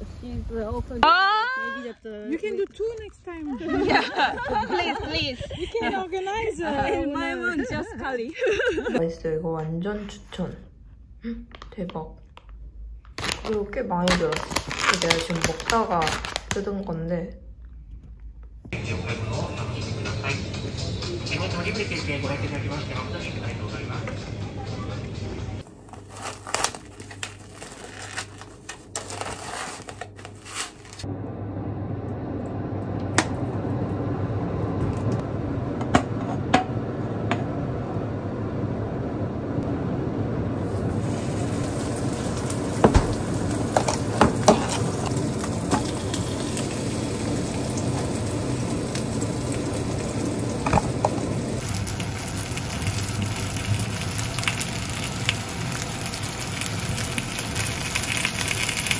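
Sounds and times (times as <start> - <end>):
food sizzling in a pan: 40.6 - 58.9.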